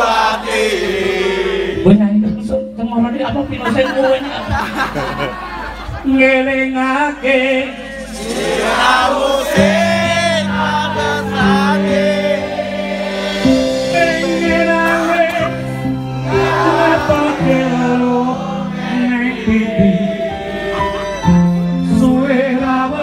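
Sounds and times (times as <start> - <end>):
crowd singing along: 0.0 - 2.0, 4.3 - 23.0
sustained low chords: 9.5 - 22.9.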